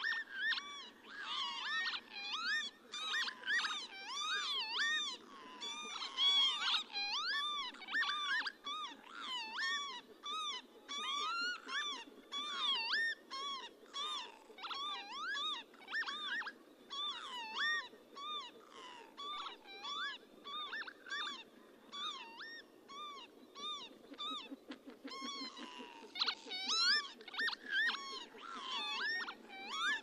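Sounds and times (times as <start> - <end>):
lapwings calling: 0.0 - 30.0.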